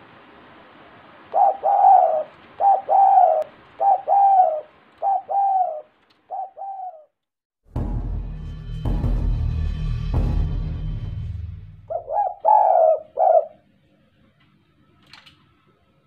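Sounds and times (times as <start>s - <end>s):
dove cooing: 1.3s - 7.1s, 11.9s - 13.7s
intro music: 7.7s - 12.2s.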